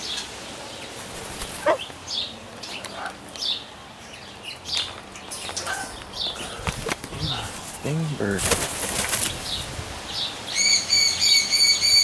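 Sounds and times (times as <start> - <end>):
parrots chirping: 0.0 - 6.6, 10.2 - 12.0.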